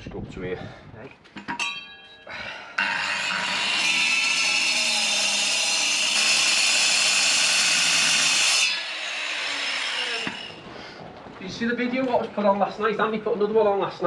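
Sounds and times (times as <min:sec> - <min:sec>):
angle grinder cutting concrete: 0:02.7 - 0:10.6.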